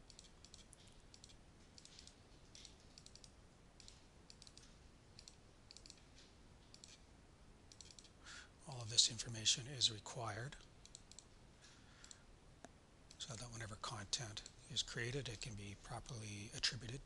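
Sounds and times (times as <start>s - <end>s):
faint keyboard typing: 0.0s - 7.1s, 7.7s - 9.5s, 10.4s - 12.2s.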